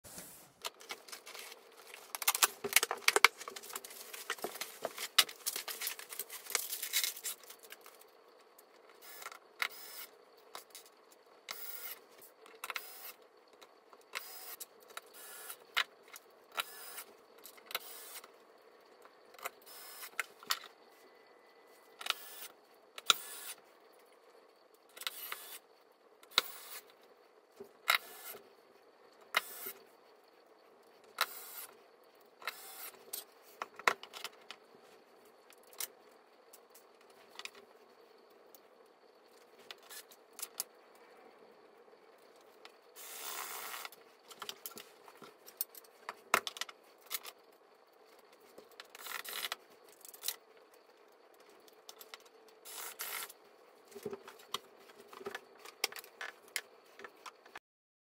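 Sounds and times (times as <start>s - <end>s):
plastic packaging rustling: 0.1s - 8.0s.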